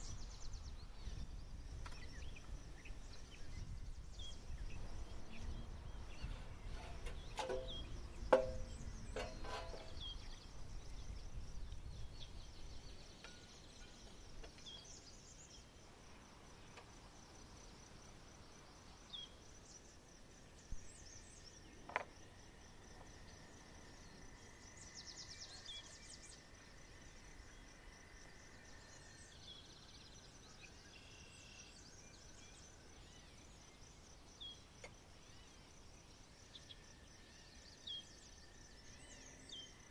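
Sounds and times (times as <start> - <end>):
knocks and clinks: 6.8 - 10.0.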